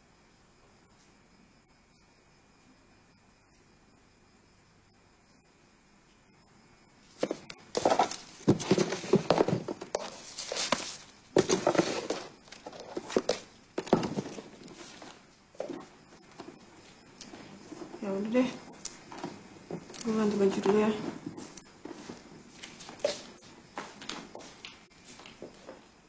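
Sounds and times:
hands rummaging in cardboard box: 0:07.2 - 0:15.2
objects knocking and thudding: 0:07.2 - 0:16.6.

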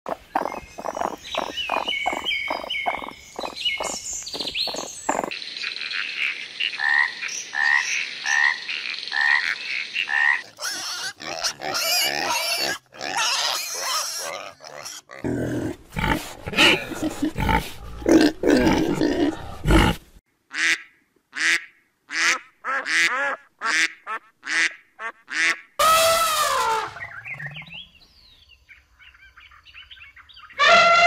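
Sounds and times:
croaking animal calls: 0:00.1 - 0:15.4.

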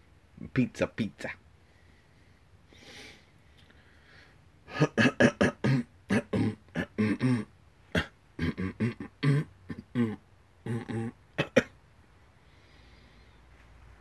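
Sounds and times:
man making wordless vocal sounds: 0:08.4 - 0:11.2.

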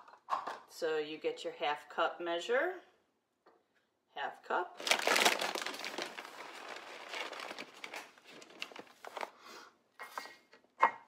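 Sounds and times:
bag crinkling and rustling: 0:04.8 - 0:09.4.

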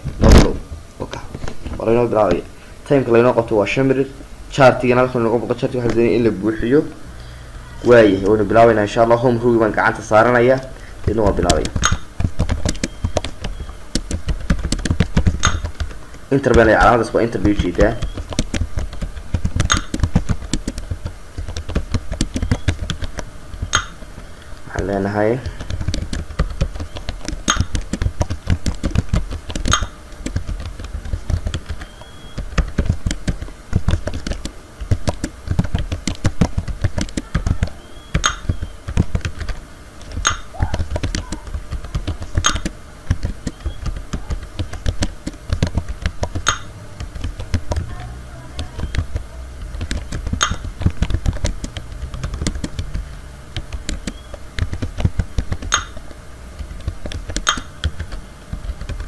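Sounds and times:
typing on computer keyboard: 0:11.0 - 0:16.0, 0:17.4 - 0:23.9, 0:25.4 - 0:48.0, 0:48.6 - 0:56.0, 0:56.6 - 0:59.0.

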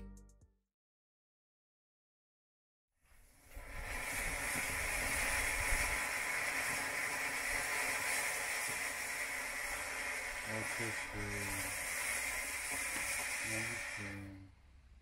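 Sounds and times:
firework fountain hissing: 0:03.0 - 0:14.5.

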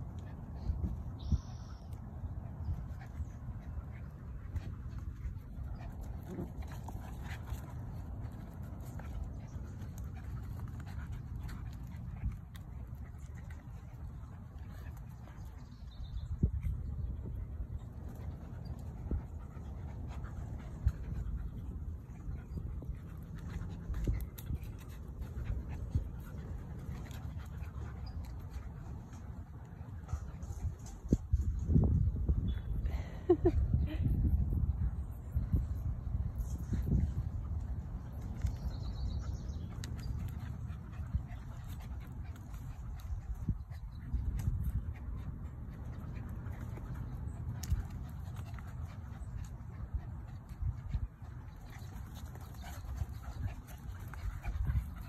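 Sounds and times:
paws scuffling on dirt: 0:02.7 - 0:16.6, 0:17.4 - 0:31.8, 0:36.3 - 0:55.0.

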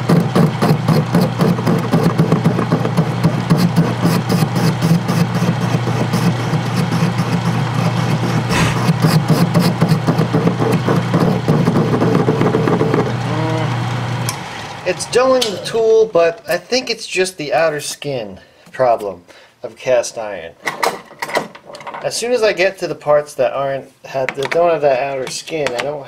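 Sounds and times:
crackle of metal cutting: 0:00.0 - 0:11.8
cutting bit scrape: 0:00.0 - 0:13.1
lathe motor hum: 0:00.0 - 0:16.1.

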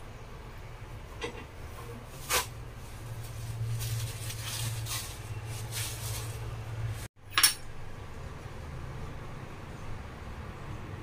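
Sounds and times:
paper towels rustling: 0:01.7 - 0:07.1.

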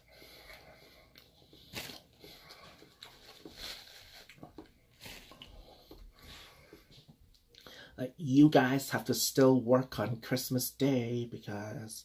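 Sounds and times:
person chewing: 0:00.0 - 0:07.7.

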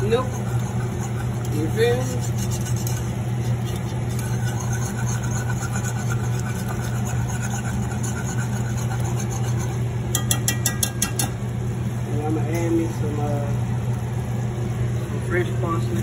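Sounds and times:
whisk clinking on pan: 0:00.0 - 0:11.4
whisk stirring in metal pan: 0:00.0 - 0:11.5.

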